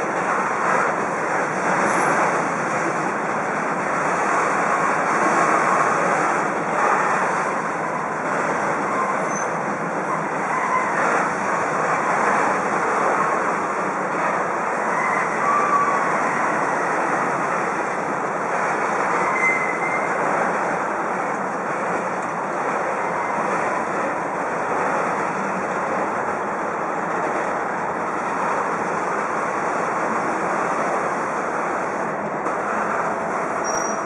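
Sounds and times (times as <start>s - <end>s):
train wheels on rail: 0.0s - 34.0s
faint wheel squeals: 8.8s - 11.2s, 14.9s - 16.5s, 19.2s - 20.2s, 33.6s - 34.0s.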